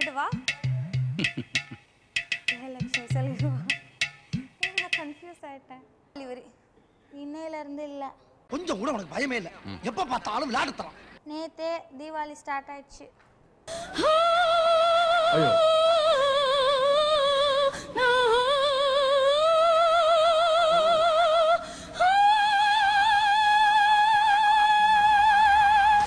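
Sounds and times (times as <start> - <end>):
woman singing operatically: 13.9 - 26.0.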